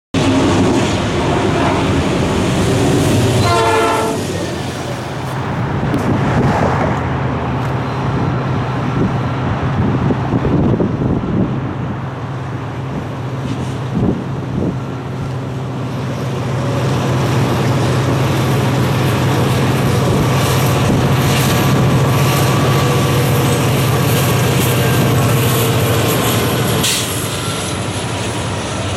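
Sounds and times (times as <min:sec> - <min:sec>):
diesel locomotive engine drone: 0:00.1 - 0:28.9
locomotive horn blast: 0:03.1 - 0:04.6.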